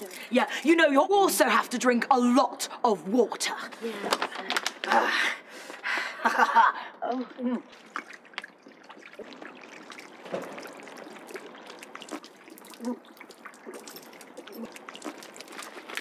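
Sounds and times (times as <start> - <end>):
wet clicks and gurgles: 4.0 - 5.1, 7.0 - 16.0
water pouring and splashing: 7.1 - 16.0.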